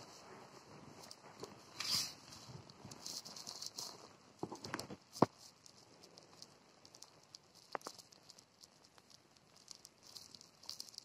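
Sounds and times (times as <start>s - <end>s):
faint rustling: 0.0s - 11.0s
small ticks: 1.0s - 11.0s.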